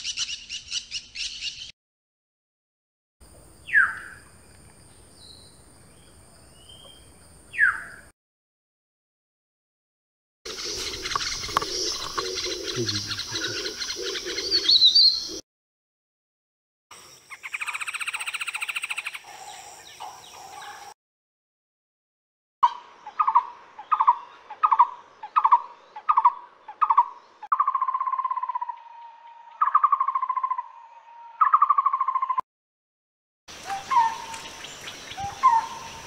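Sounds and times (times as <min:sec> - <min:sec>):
woodpecker rattling trills: 0:10.5 - 0:15.0
woodpecker calls: 0:10.5 - 0:15.4, 0:17.3 - 0:20.9, 0:23.0 - 0:28.8, 0:29.6 - 0:30.8, 0:31.4 - 0:32.4, 0:33.6 - 0:36.0.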